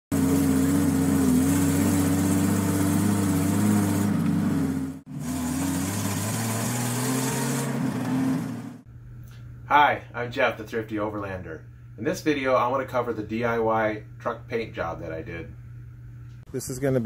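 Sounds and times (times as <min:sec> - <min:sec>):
vehicle engine running: 0:00.1 - 0:08.9.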